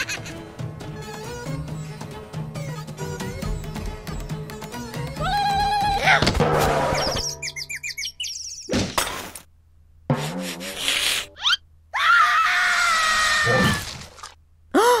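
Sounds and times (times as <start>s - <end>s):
high-pitched cartoon scream: 5.2s - 6.2s, 11.4s - 14.0s
chirpy cartoon squeaks: 6.9s - 8.8s, 11.2s - 11.7s.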